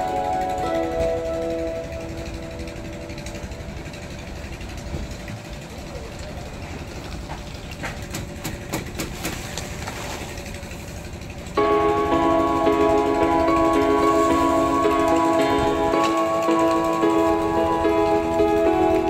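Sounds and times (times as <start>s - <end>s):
background music: 0.0s - 5.0s, 11.6s - 19.0s.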